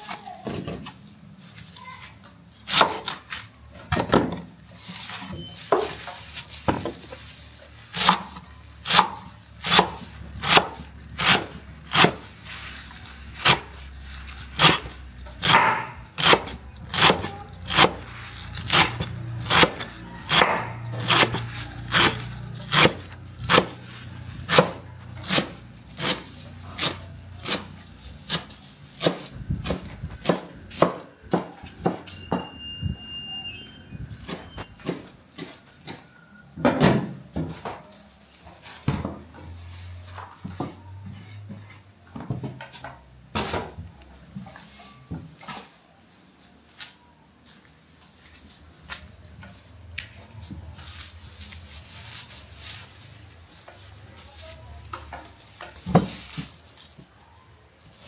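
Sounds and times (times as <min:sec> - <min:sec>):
knife chopping on cutting board: 0:18.7 - 0:23.8, 0:24.5 - 0:26.2.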